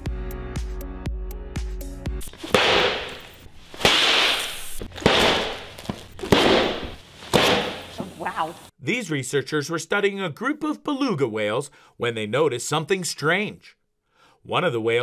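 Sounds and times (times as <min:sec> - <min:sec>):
airbag vest popping and hissing: 0:02.2 - 0:08.3.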